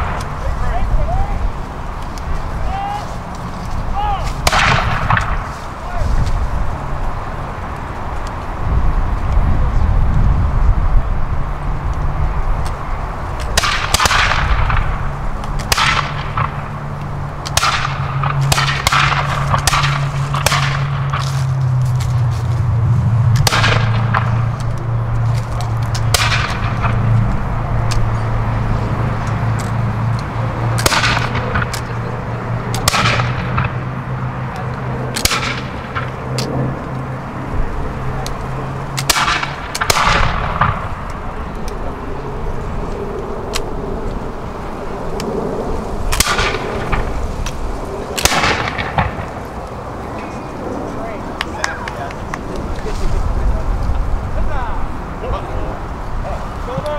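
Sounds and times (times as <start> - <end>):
musket shots: 4.3 - 5.5, 13.4 - 15.0, 15.6 - 16.8, 17.4 - 21.4, 23.4 - 24.4, 25.9 - 27.1, 30.8 - 31.9, 32.7 - 33.8, 35.1 - 36.1, 39.0 - 40.9, 46.1 - 47.1, 48.2 - 49.3.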